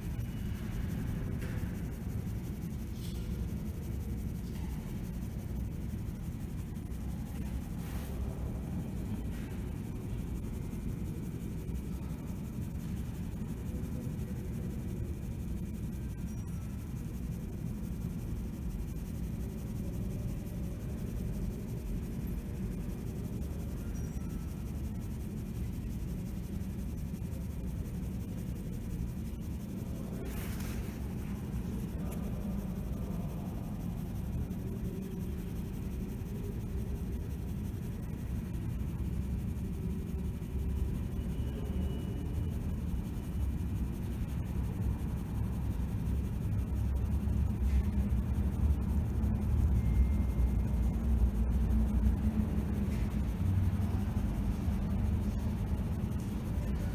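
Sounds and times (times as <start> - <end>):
low rumble of train platform: 29.6 - 56.9.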